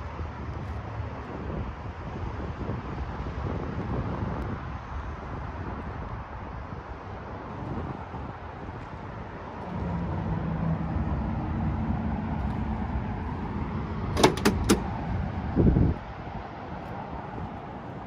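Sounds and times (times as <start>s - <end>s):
wind on microphone: 0.0s - 18.0s
low hum: 9.6s - 14.2s
car door latch clicks: 14.1s - 15.0s.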